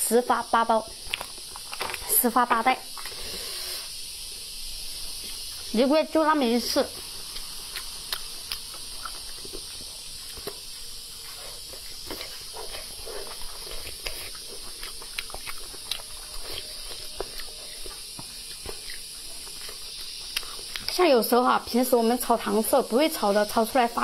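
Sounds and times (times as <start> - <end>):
background hiss: 0.0 - 24.0
person chewing: 7.2 - 21.0.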